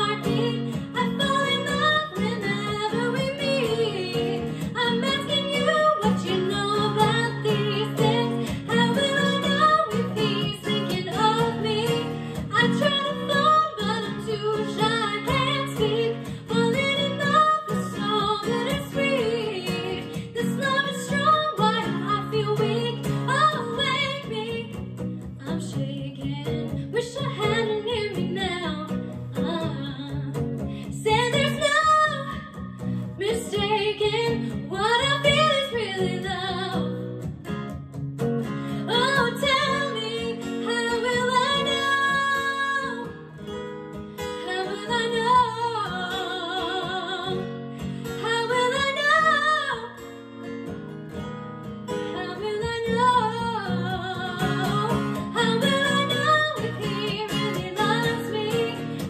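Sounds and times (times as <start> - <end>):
woman singing a pop ballad: 0.0 - 37.8, 38.4 - 50.2, 51.9 - 59.0
strummed acoustic guitar: 0.0 - 59.0.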